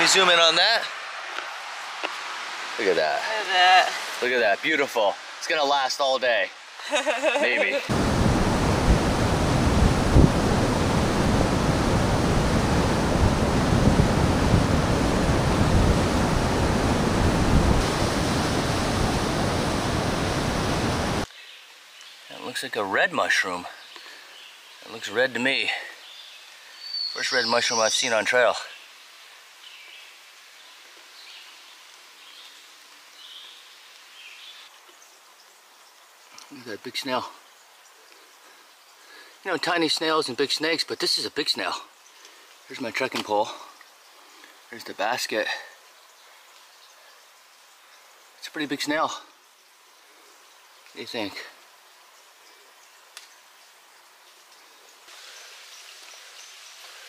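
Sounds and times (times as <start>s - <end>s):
steady hiss: 0.0s - 57.0s
water rushing through spillway: 7.7s - 21.3s
small bird calling: 26.0s - 28.2s.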